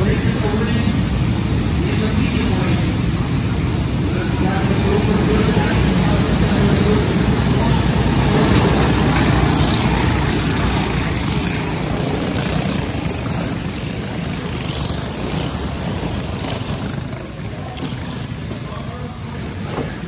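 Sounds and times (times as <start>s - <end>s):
go-kart engines racing: 0.0s - 20.0s.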